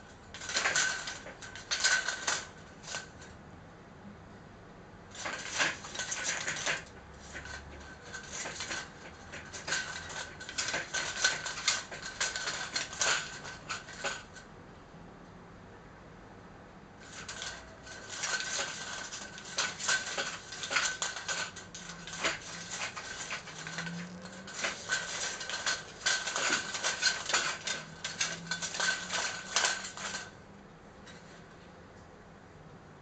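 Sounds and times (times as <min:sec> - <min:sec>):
blind slats rattling: 0:00.0 - 0:03.3, 0:05.1 - 0:14.4, 0:17.0 - 0:30.4.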